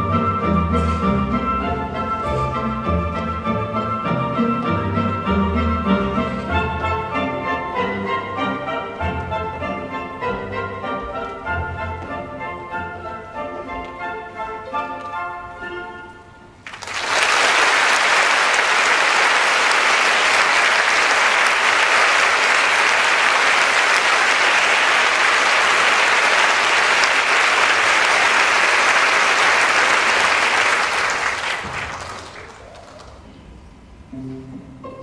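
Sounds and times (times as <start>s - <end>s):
orchestral music: 0.0s - 16.6s, 34.0s - 35.0s
audience applauding: 16.6s - 33.3s.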